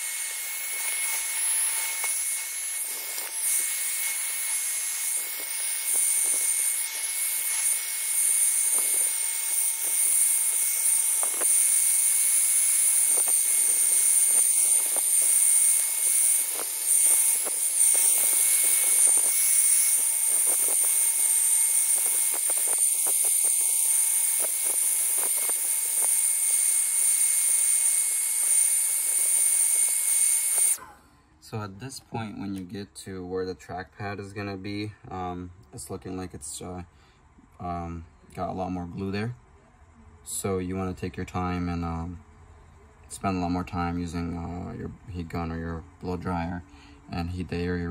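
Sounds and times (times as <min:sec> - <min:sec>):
hot-air blower running: 0:00.0 - 0:31.0.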